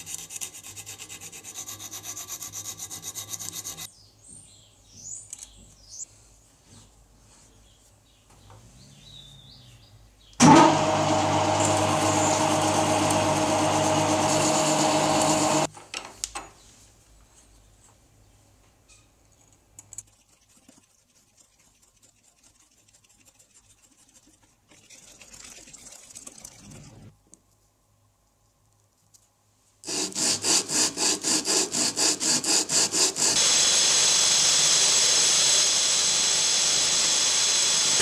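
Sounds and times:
electric power tool running: 10.4s - 15.7s, 29.9s - 38.0s.

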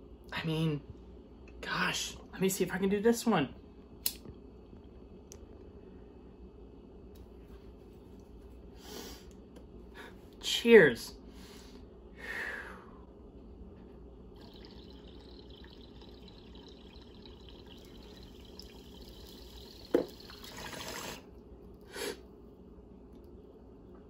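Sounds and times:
water bubbling in bong: 14.4s - 21.3s.

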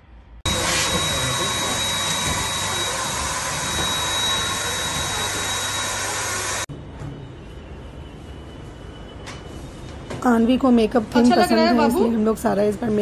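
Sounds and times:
electric balloon pump whining: 0.5s - 6.7s.

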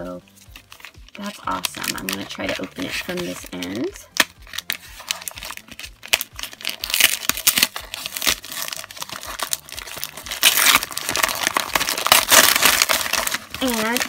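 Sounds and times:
wrapping paper tearing and crinkling: 0.2s - 14.0s.

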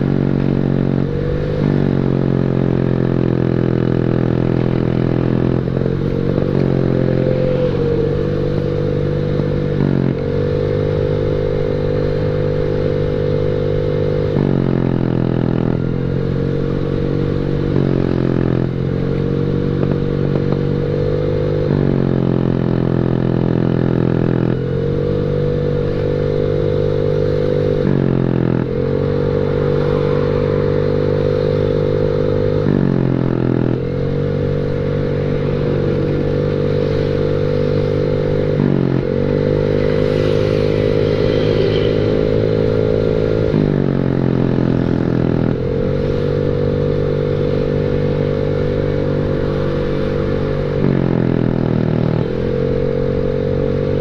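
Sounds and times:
scooter engine revving: 0.0s - 54.0s.

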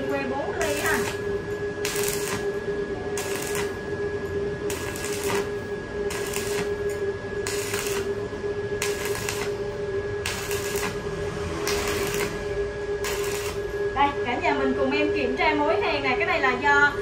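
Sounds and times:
stick welder arc crackling: 0.0s - 2.6s, 3.2s - 3.9s, 4.6s - 13.8s
steady hum: 0.0s - 17.0s.

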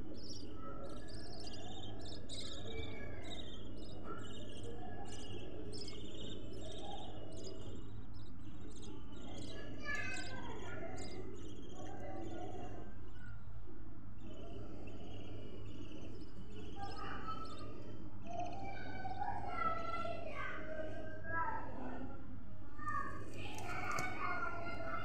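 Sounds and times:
budgerigars chirping: 0.1s - 12.6s
steady low hum: 10.6s - 18.7s.

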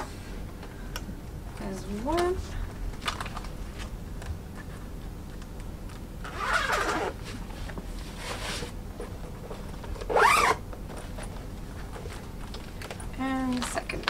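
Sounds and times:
zipper rasping: 6.2s - 7.3s, 10.0s - 10.6s.

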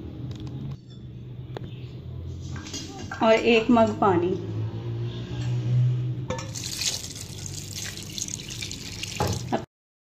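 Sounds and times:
water pouring into a pot: 6.5s - 9.6s.

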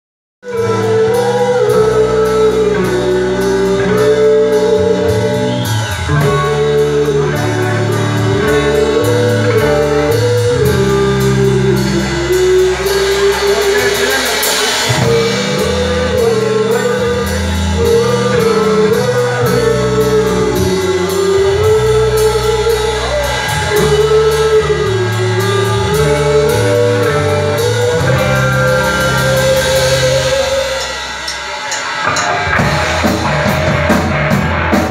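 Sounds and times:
drum kit: 0.4s - 34.9s
electric guitar: 0.4s - 34.9s
woman singing: 0.5s - 31.0s.

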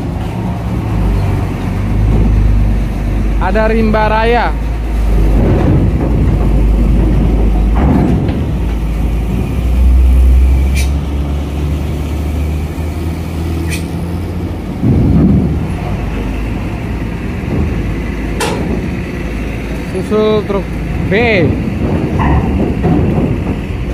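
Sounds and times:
truck engine rumbling: 0.0s - 23.9s
clanks over ramp plates: 4.5s - 10.1s, 14.6s - 23.9s.

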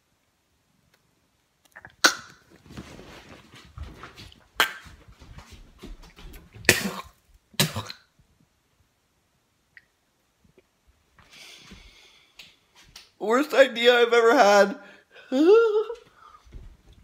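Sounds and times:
man coughing and gagging: 6.7s - 8.0s.

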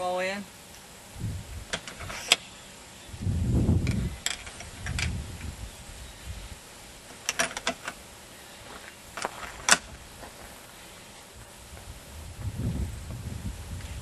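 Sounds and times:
rifle handling rumble: 3.8s - 5.5s, 7.1s - 8.0s.

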